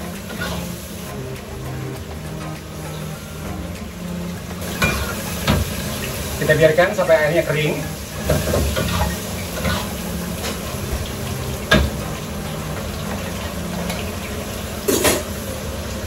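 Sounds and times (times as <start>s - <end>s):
food sizzling in a frying pan: 0.0s - 16.0s
spatula stirring a pan: 3.9s - 14.1s.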